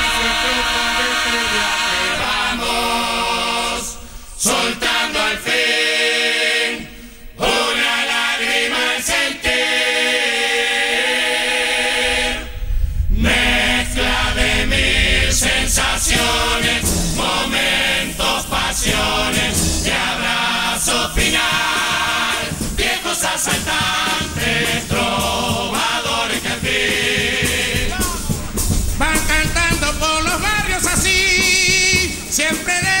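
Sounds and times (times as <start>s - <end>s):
low drumming: 0.0s - 5.1s, 11.0s - 33.0s
chorus singing in harmony: 0.0s - 33.0s
sharp percussion strikes: 14.9s - 33.0s.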